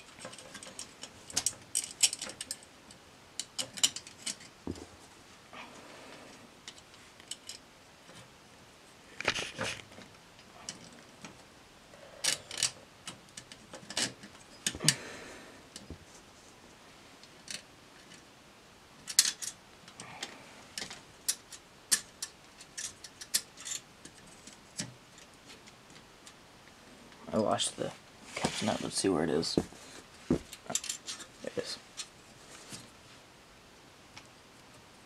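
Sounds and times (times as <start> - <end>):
metal parts clicking together: 0.1 - 2.7, 3.4 - 4.5, 12.2 - 15.0, 19.0 - 20.0, 20.8 - 25.3, 30.6 - 31.3.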